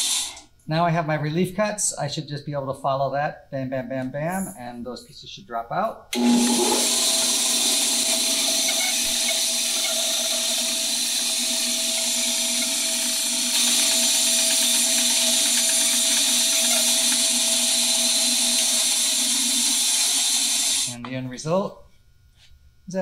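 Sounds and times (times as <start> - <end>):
band saw cutting wood: 6.2 - 21.0.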